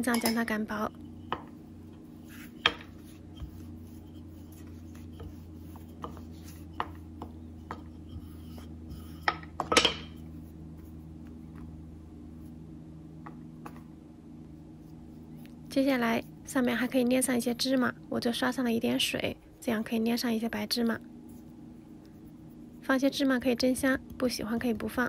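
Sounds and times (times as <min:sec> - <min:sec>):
steady low hum: 0:00.0 - 0:25.0
rolling pin on wooden board: 0:01.1 - 0:11.0
rolling pin knocking board: 0:02.6 - 0:10.2.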